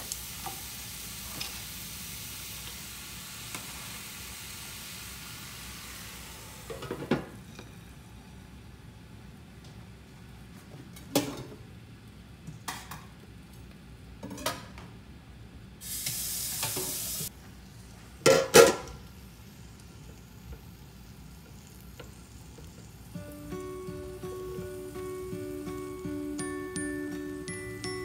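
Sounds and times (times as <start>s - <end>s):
vegetables sizzling: 0.0s - 7.6s, 15.8s - 28.0s.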